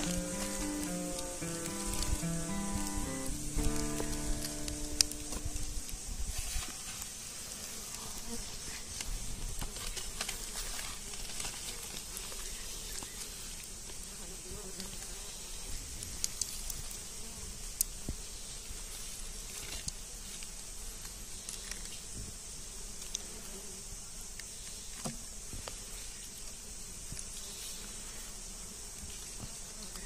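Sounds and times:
bees buzzing: 0.0 - 6.1
insects droning: 0.0 - 30.0.

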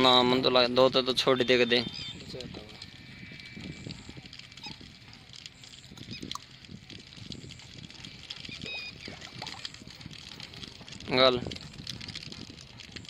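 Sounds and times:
fuel glugging and splashing: 5.5 - 11.3.

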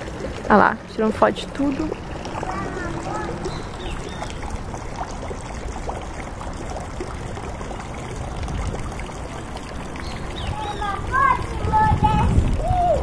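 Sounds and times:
heavy low rumble: 1.0 - 5.0
outdoor rushing noise: 1.2 - 5.1.

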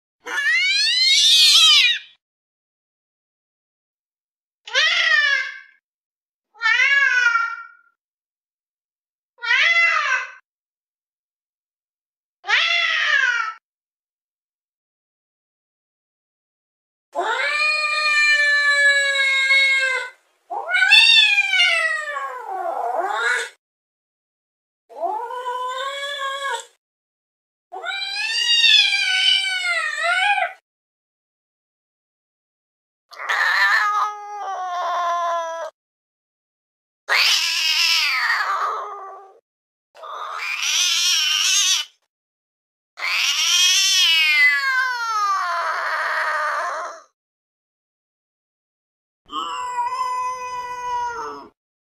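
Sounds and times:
angry cat yowling: 0.2 - 2.2, 6.6 - 7.9, 9.4 - 10.4, 17.2 - 23.6, 27.8 - 30.6, 33.1 - 35.8, 37.1 - 39.4, 40.0 - 42.0, 43.0 - 47.1, 49.3 - 51.6.

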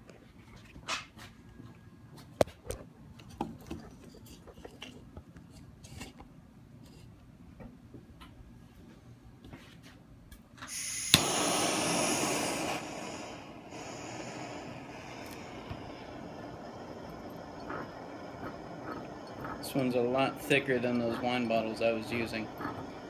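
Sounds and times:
torch igniter click: 10.6 - 14.2
flame hissing: 10.6 - 23.0
gas rushing: 10.7 - 23.0.

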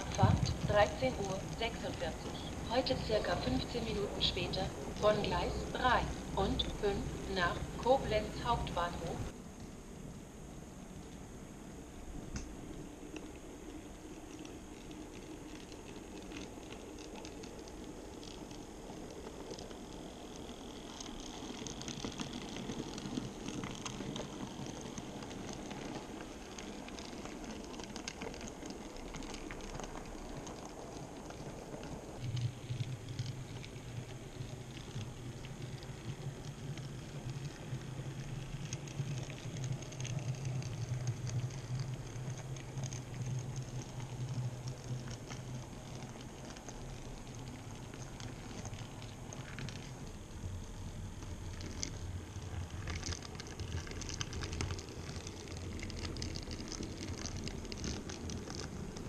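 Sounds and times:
steady low hum: 0.0 - 59.0
model train wheels clicking: 12.7 - 59.0.

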